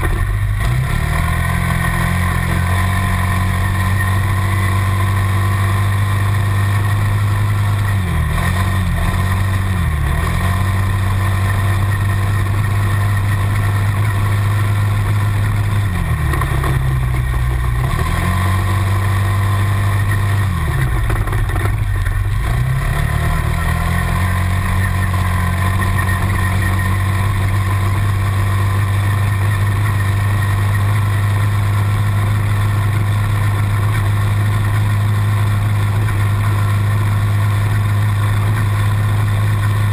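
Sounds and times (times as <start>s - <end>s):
quad bike engine revving: 0.0s - 39.9s.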